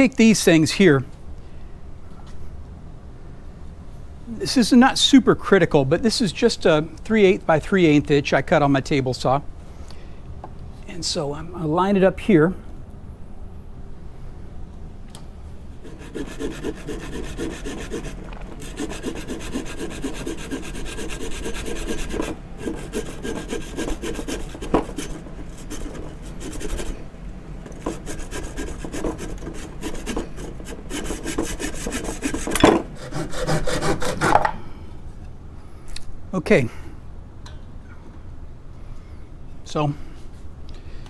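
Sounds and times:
hand tool rasping wood: 15.8 - 27.0, 27.7 - 34.5.

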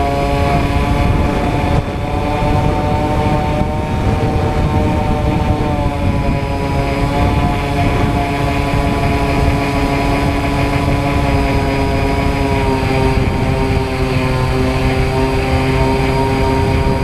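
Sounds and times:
low rumble: 0.0 - 17.0
model airplane motor whine: 0.0 - 17.0.

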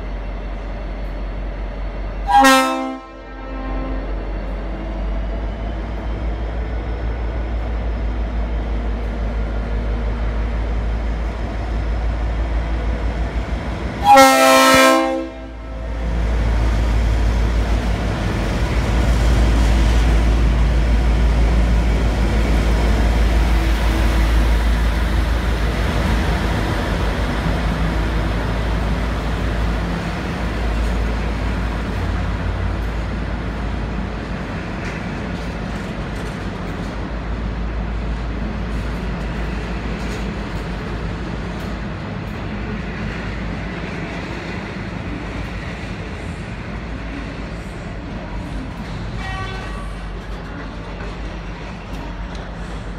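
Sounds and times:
locomotive horn blast: 2.3 - 4.2, 14.0 - 15.8, 49.2 - 50.0.

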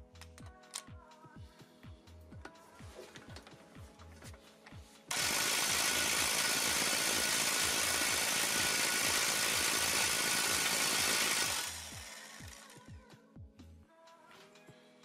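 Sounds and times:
air impact wrench hammering: 5.1 - 12.9.

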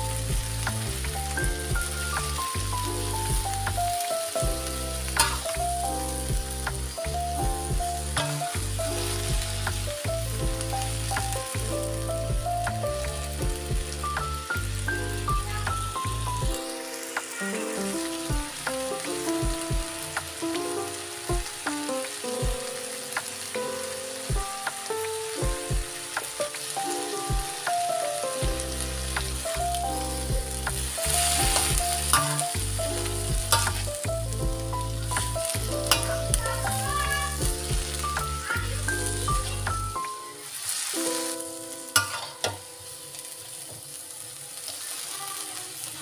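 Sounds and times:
background music: 0.0 - 43.6
vegetables sizzling in a wok: 0.0 - 46.0
metal spatula scraping pan: 5.2 - 5.5.

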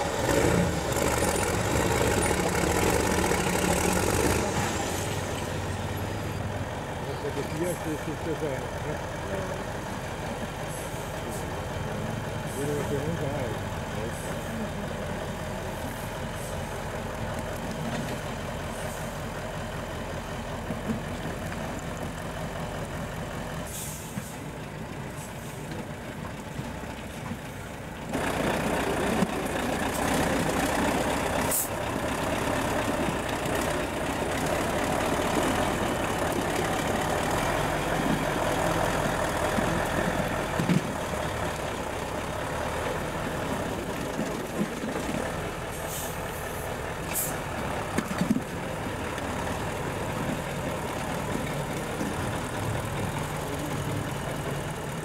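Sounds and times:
diesel truck engines crawling: 0.0 - 55.0.

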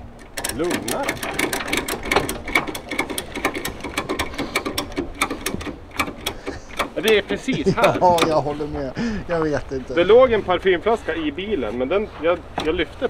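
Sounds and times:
ratchet strap clicking: 0.1 - 8.4.

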